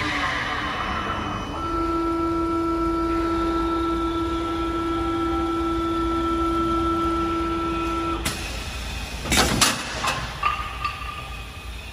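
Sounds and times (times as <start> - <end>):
wood lathe motor whine: 0.0 - 8.3
machine mechanical clatters: 7.8 - 11.9.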